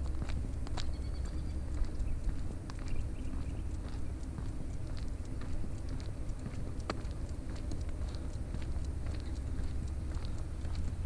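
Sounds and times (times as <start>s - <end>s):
footsteps on pavement: 0.0s - 11.0s
steady low rumble: 0.0s - 11.0s.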